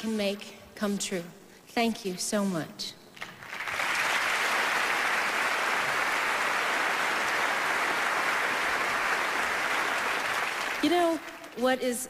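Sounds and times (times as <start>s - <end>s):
audience applauding: 3.2s - 11.6s.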